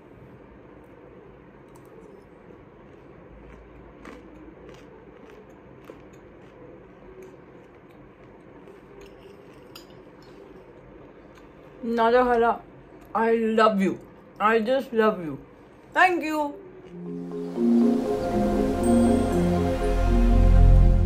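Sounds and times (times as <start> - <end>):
low room hum: 0.0 - 21.0
chewing: 1.7 - 11.7.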